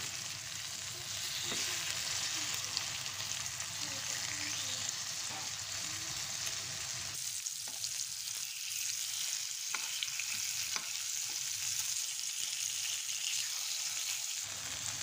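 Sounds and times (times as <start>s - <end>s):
fish sizzling in oil: 0.0s - 15.0s.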